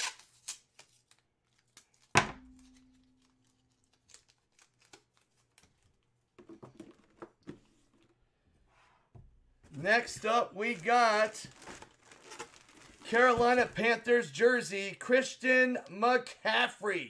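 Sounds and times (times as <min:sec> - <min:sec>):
packaging clicks and crinkling: 0:00.0 - 0:06.2, 0:10.1 - 0:13.8.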